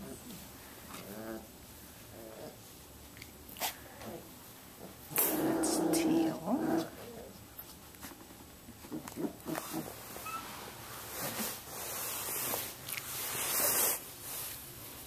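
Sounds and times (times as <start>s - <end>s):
puppies making small noises: 0.0s - 14.4s
rustling: 0.0s - 15.0s
puppy squeaks: 10.2s - 10.5s.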